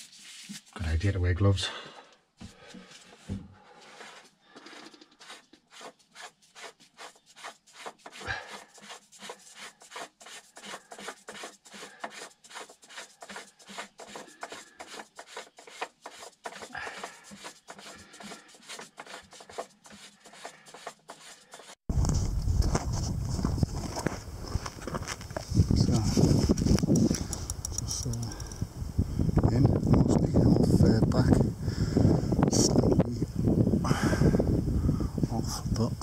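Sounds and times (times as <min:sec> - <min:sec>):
gloved hands rubbing plastic: 0:00.0 - 0:00.8, 0:02.4 - 0:27.8.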